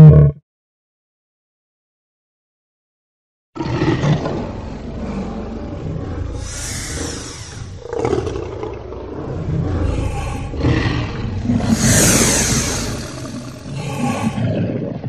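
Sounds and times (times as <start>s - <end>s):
deep growling dinosaur roar: 3.6s - 15.0s.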